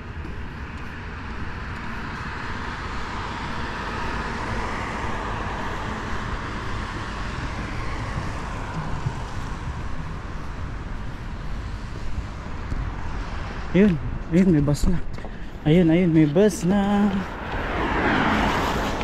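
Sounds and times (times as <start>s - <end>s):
low rumble of traffic: 0.0s - 19.0s
vehicle passing by: 0.4s - 10.4s, 15.7s - 19.0s.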